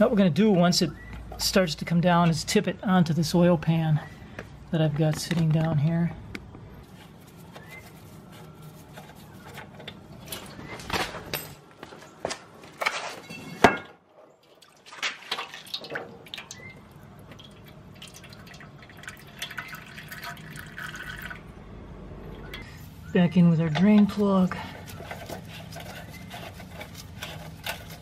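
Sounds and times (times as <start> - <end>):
oil dripping into a pan: 14.4 - 21.4.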